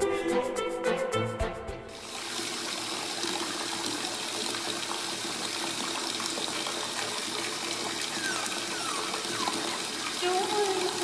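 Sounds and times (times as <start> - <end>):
water running into bathtub: 1.9 - 11.0
puppies whimpering: 8.0 - 11.0.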